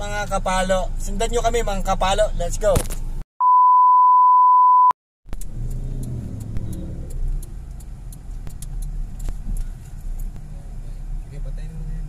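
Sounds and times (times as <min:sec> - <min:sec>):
test tone: 0:03.4 - 0:04.9
car engine running inside cabin: 0:05.3 - 0:12.0.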